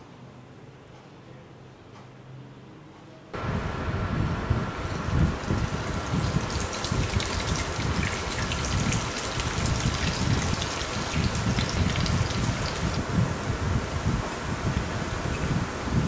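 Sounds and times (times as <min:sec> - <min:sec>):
faint steady whine: 0:03.4 - 0:16.0
oil sizzling and crackling: 0:04.4 - 0:16.0.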